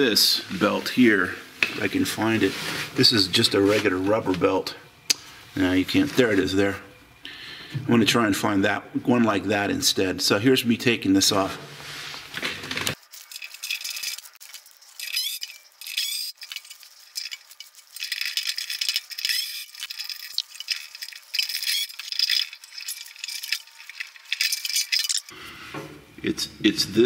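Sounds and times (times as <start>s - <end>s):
metallic clinks and rattles: 13.0s - 25.4s.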